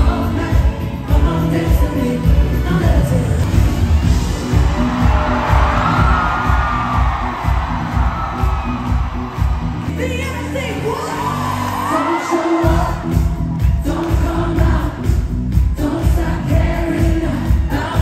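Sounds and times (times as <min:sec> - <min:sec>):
person singing: 0:00.0 - 0:03.6, 0:11.8 - 0:18.0
crowd noise: 0:00.0 - 0:18.0
heavy steady beat: 0:03.4 - 0:09.9.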